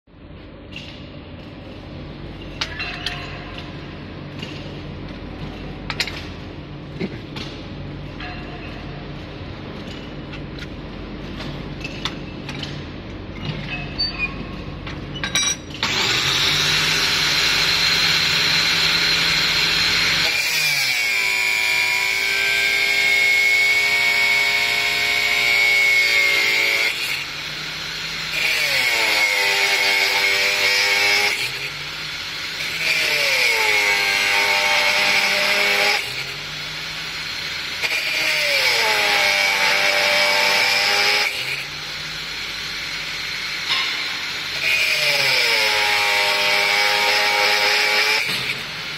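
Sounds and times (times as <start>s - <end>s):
angle grinder cutting steel: 15.8s - 48.9s.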